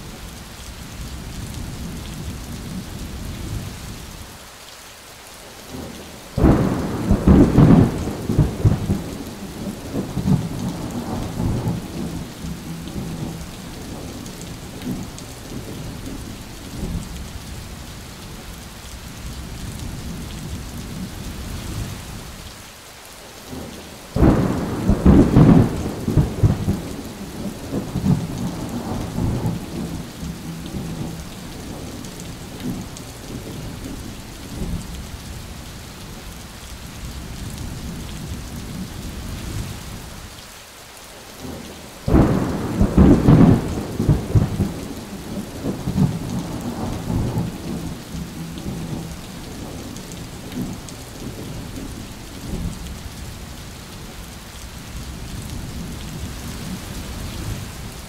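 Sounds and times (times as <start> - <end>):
steady rain: 0.0 - 58.0
thunderclaps rumbling: 6.4 - 17.1, 24.2 - 34.9, 41.4 - 52.9.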